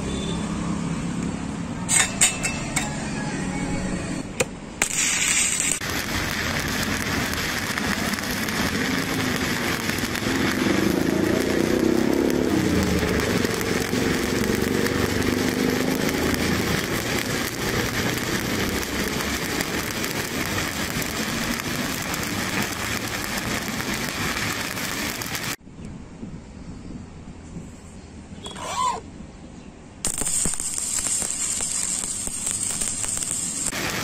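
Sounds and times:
stick welding arc: 1.8 - 3.4, 4.2 - 25.6, 30.0 - 34.0.

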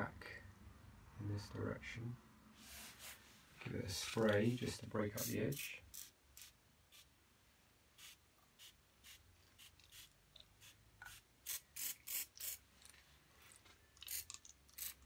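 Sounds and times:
spray bottle squirts hissing: 8.0 - 12.6.

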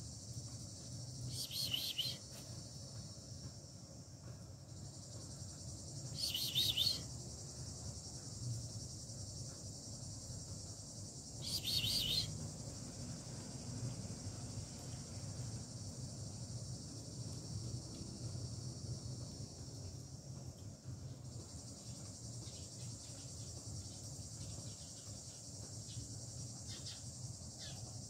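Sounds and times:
high-pitched insect chorus: 0.0 - 28.0
bird calls: 1.4 - 2.2, 6.2 - 7.0, 11.5 - 12.3.

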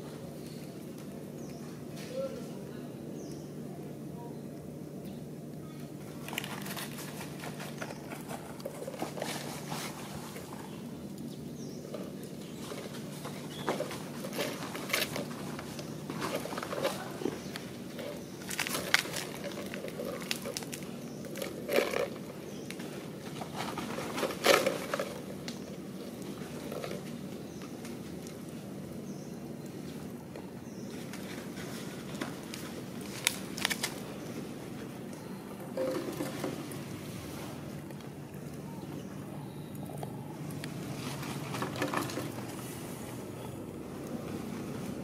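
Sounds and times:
low background hum: 0.0 - 45.0
plastic cup scraping on concrete: 35.7 - 38.0, 40.7 - 43.0.

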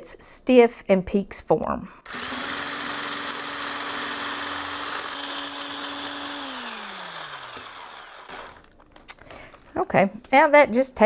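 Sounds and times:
stick blender whisking cream: 2.1 - 8.7.

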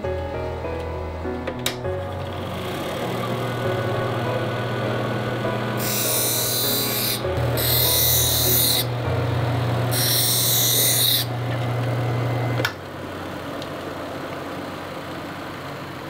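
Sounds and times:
grinding wheel humming: 2.0 - 15.2
high hissing lens grinding: 5.8 - 8.9, 9.9 - 11.3.

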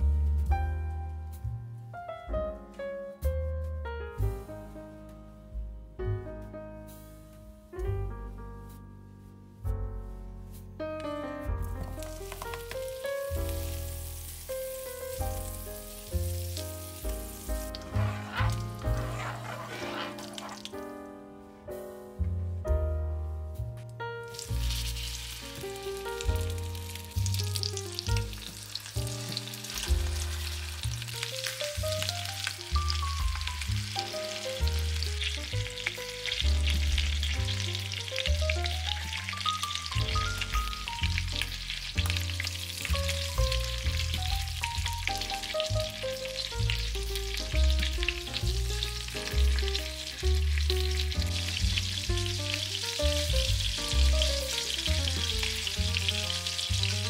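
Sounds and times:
background music: 0.0 - 57.0
food sizzling in a hot pan: 11.8 - 20.8, 24.3 - 57.0.

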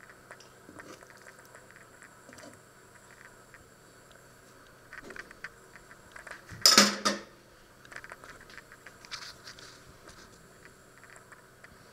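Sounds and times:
metal tongs and pot clattering: 6.7 - 7.3.

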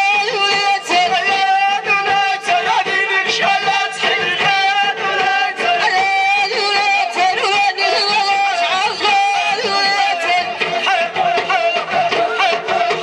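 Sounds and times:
men and women chanting in chorus: 9.6 - 13.0.

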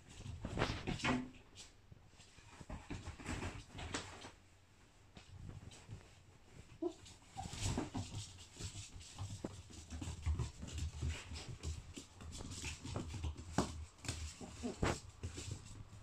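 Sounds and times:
paws clicking on wooden floor: 5.1 - 16.0.

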